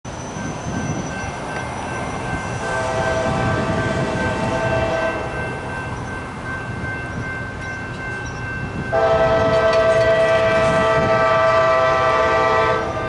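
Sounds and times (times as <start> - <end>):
locomotive air horn: 2.6 - 5.3, 8.9 - 13.0.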